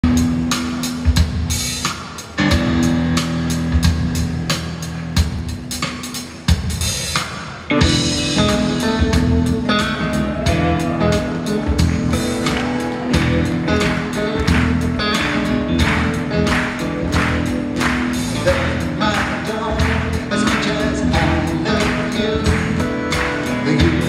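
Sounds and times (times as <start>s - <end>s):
drums: 0.0s - 24.0s
acoustic guitar strumming: 7.7s - 24.0s.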